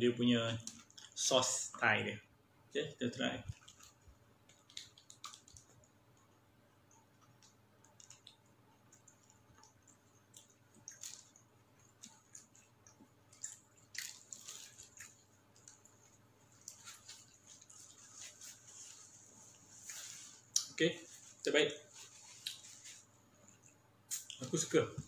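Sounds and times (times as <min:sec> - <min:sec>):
close-up chewing: 0:06.9 - 0:20.7.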